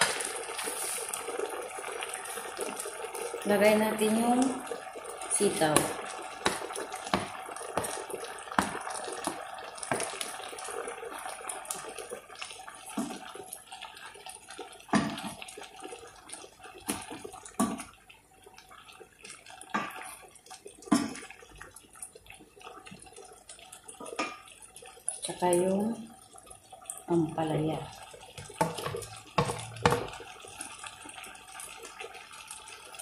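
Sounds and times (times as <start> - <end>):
bubbling sauce hissing: 0.0 - 27.2, 27.8 - 33.0
wooden spatula knocking on pan: 5.8 - 10.2, 28.4 - 30.2.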